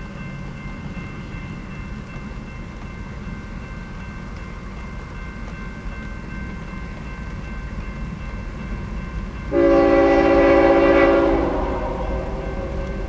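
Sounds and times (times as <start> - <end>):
crossing warning bell ringing: 0.0 - 13.0
locomotive air horn: 9.5 - 13.0.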